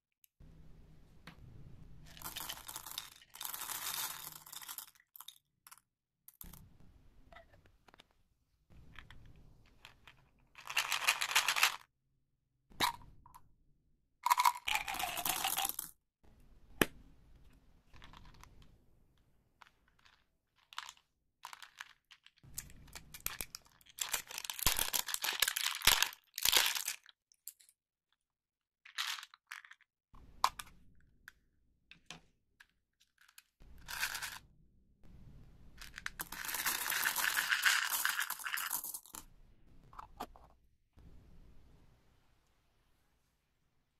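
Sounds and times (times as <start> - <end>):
candy wrappers crinkling and tearing: 20.0 - 27.2.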